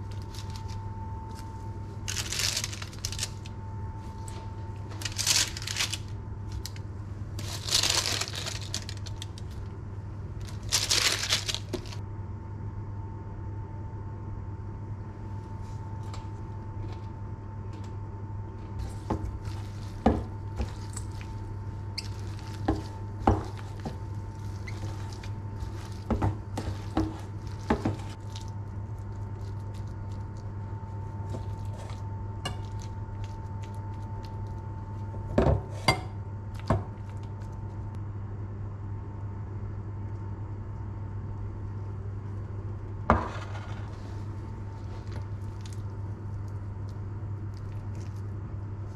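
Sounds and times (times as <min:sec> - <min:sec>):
parchment paper rustling: 0:00.0 - 0:06.8, 0:07.4 - 0:09.7, 0:10.4 - 0:12.0, 0:18.8 - 0:34.6.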